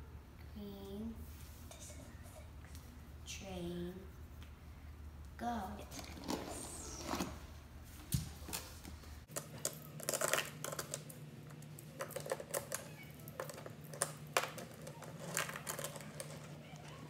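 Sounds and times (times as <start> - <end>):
toy trains clicking and clattering: 12.0 - 17.0.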